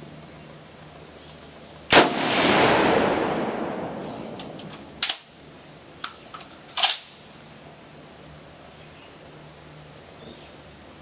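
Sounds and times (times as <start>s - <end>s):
rifle shot: 1.9s - 5.3s
rifle bolt clicks: 4.3s - 5.3s.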